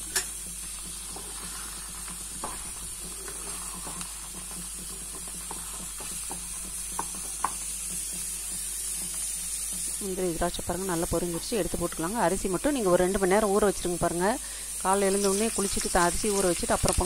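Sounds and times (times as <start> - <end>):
spatula stirring thick food in pot: 0.0 - 12.9.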